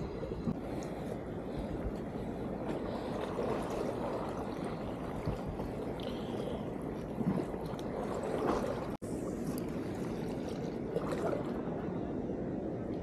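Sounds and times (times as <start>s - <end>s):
sea water washing against rocks: 2.8s - 12.0s.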